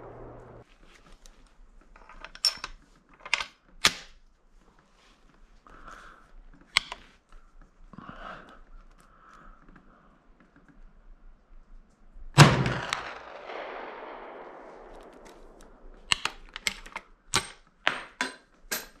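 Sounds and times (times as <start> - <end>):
rifle shot echoing: 0.0 - 0.6, 12.4 - 16.0.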